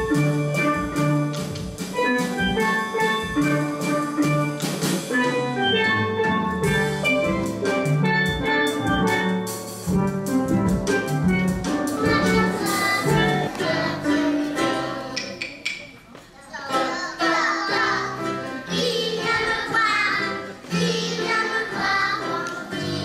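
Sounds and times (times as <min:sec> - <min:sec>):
steelpans playing melody: 0:00.0 - 0:15.5
drum kit beat: 0:00.0 - 0:16.0, 0:17.3 - 0:23.0.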